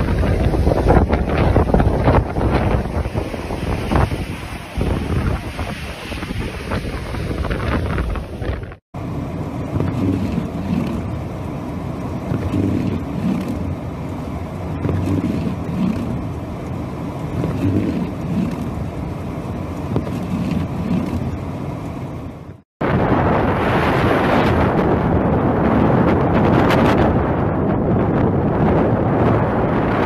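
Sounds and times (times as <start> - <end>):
wind blasting microphone: 0.0 - 11.3, 12.1 - 16.6, 17.2 - 21.5, 22.5 - 30.0
car engine and road noise: 6.9 - 22.7.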